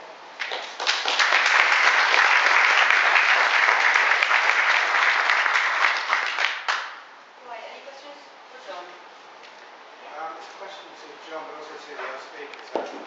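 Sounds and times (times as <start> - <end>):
audience applauding: 0.4 - 6.9.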